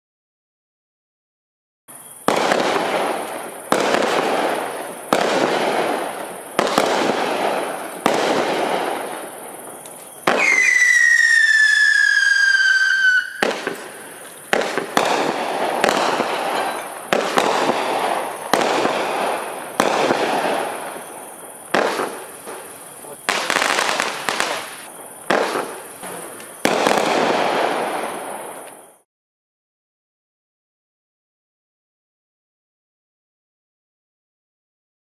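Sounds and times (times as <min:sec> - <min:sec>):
falling firework whistle: 0:01.9 - 0:29.0
firework bangs: 0:01.9 - 0:29.0.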